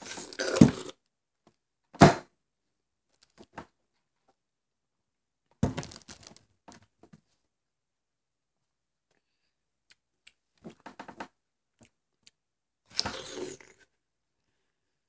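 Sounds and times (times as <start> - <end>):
sharp thunk: 2.0 - 2.3.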